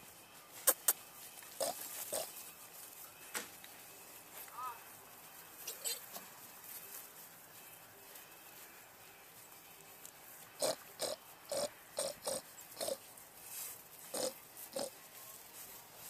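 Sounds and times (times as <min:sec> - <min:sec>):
piglets grunting: 0:01.6 - 0:02.3, 0:10.6 - 0:13.1, 0:14.1 - 0:15.0.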